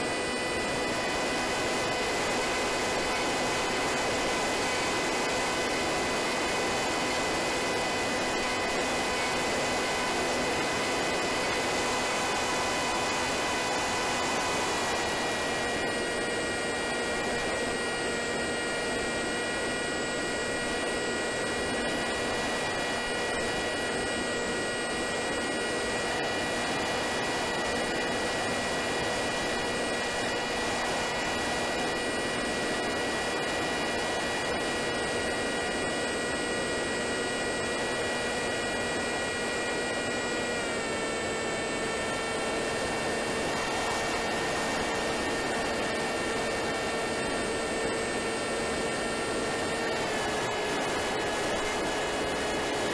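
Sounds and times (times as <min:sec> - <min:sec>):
electric motor and propeller whining: 0:00.0 - 0:52.9.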